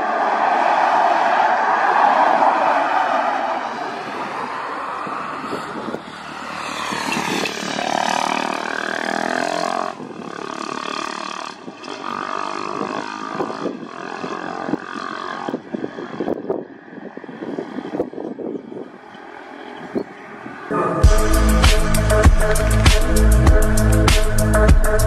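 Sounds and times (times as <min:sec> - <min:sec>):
jet engines roaring: 0:00.0 - 0:08.8.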